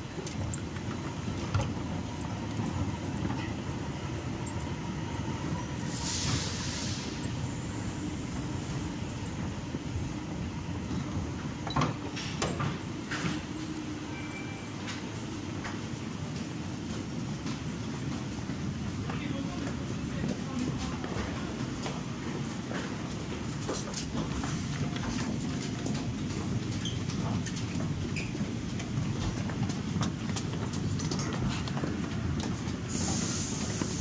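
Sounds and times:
subway station rumble: 0.0 - 34.0
steamy hiss: 5.8 - 8.0, 32.9 - 34.0.

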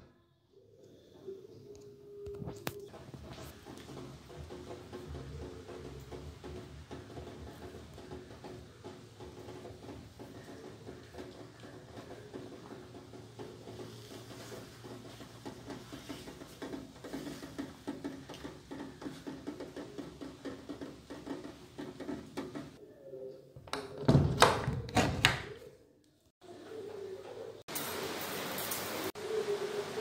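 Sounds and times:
wooden door knocking and thudding: 24.0 - 25.5.

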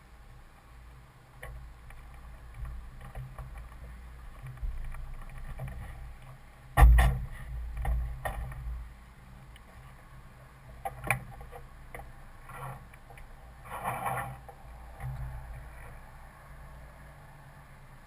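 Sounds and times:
knocks and creaks in airframe: 1.4 - 8.8.

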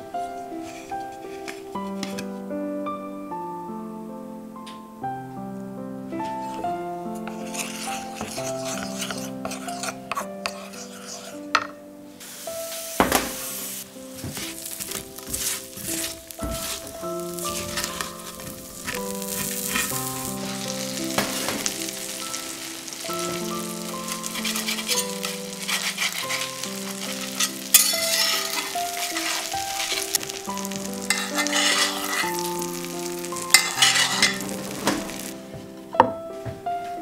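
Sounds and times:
soft background music: 0.0 - 37.0
food sizzling in oil: 6.2 - 35.5.

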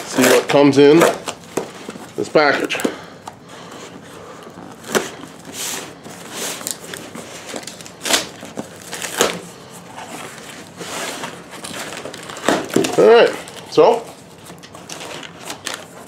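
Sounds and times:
tool slitting packing tape: 0.0 - 1.4, 4.8 - 9.4
cardboard tearing: 0.0 - 2.8, 4.7 - 16.0
paper rustling: 3.6 - 16.0.

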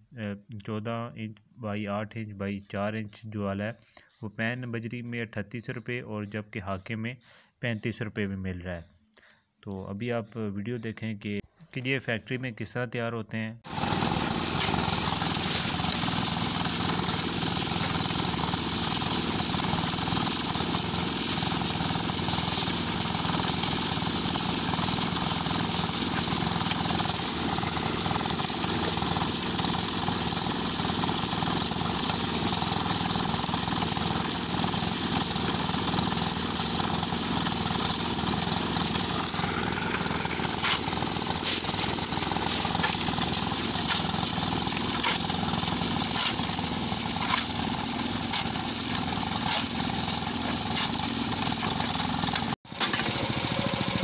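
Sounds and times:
shovel scraping: 13.7 - 53.1
concrete mixer engine running: 13.7 - 54.0
wet concrete tumbling in drum: 14.4 - 52.0.

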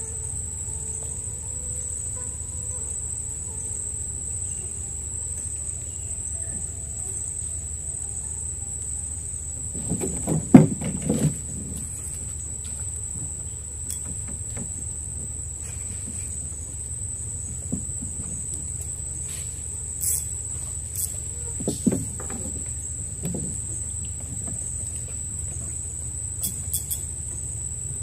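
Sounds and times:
low steady hum: 0.0 - 28.0
night insects droning: 0.0 - 28.0
knocks and bumps on a boat: 9.4 - 28.0.

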